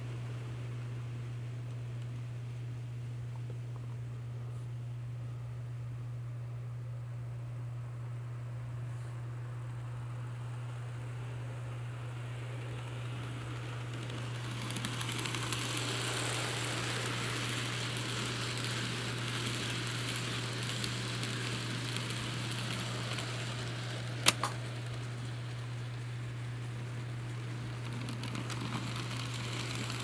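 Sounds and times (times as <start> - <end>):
model train wheels rattling: 12.1 - 30.0.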